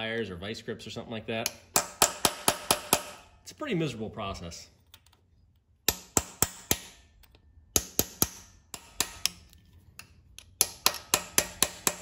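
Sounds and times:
hammer tapping steel punch: 1.4 - 3.2, 5.8 - 7.0, 7.7 - 12.0.

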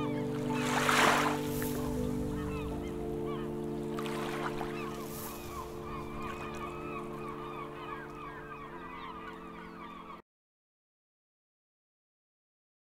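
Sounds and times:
birds chirping: 0.0 - 10.2
held low chord: 0.0 - 10.2.

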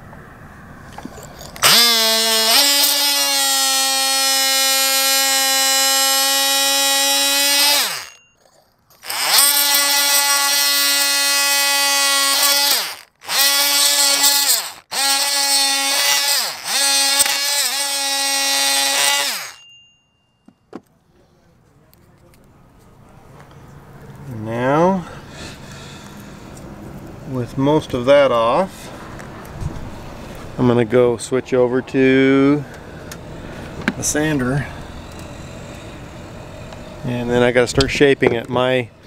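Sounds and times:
blade scraping epoxy: 1.0 - 19.6
oscillating multi-tool buzzing: 1.5 - 19.8.

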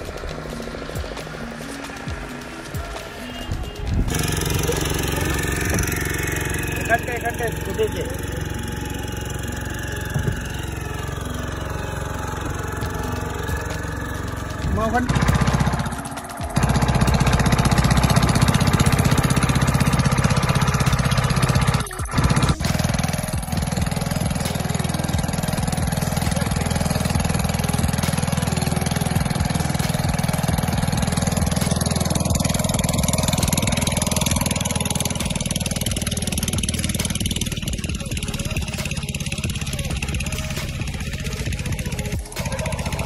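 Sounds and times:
boat engine droning: 0.0 - 43.0.

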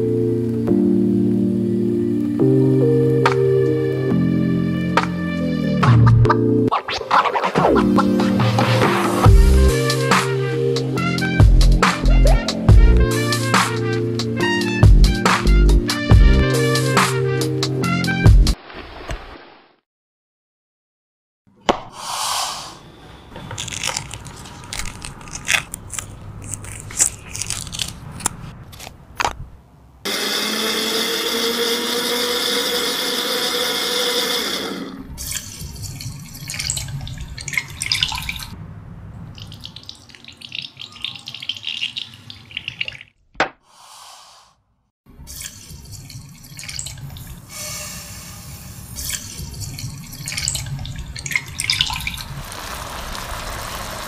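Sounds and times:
liquid splashing and pouring: 35.2 - 38.6, 39.4 - 43.2, 45.3 - 47.5, 49.0 - 54.0.

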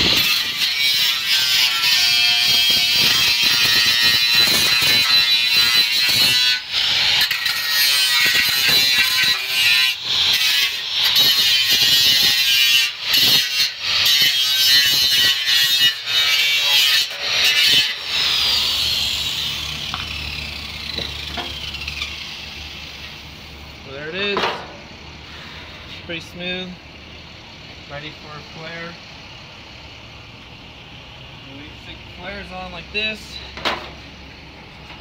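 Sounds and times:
grinder winding down: 0.0 - 15.2, 15.9 - 24.0
angle grinder grinding metal: 0.0 - 24.5.

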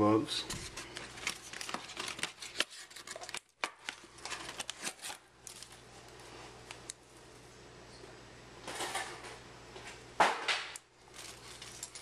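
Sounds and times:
cards and cardboard box rustling: 0.5 - 6.2, 11.1 - 12.0.

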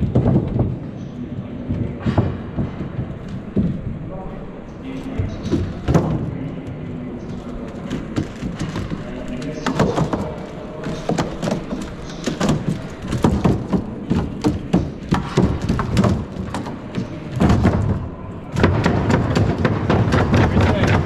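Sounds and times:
hall background hum: 0.0 - 21.0
robot feet thudding and tapping: 7.2 - 21.0.

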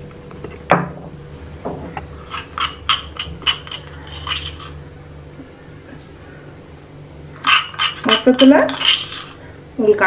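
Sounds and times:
low steady hum: 0.0 - 10.0
plastic spoon scraping stone mortar: 2.2 - 4.8, 7.4 - 9.4.

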